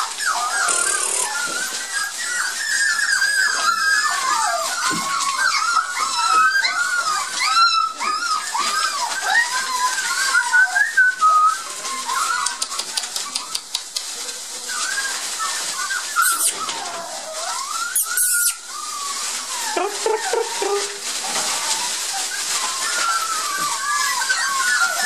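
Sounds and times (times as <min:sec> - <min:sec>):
puppies whining and squealing: 0:00.0 - 0:25.0
shredded newspaper rustling: 0:00.0 - 0:25.0.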